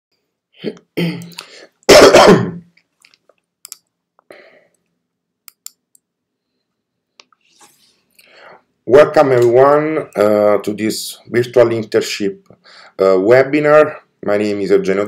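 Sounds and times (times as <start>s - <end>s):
person clearing throat: 0.6s - 2.7s
computer mouse clicks: 3.0s - 3.9s, 5.5s - 6.1s.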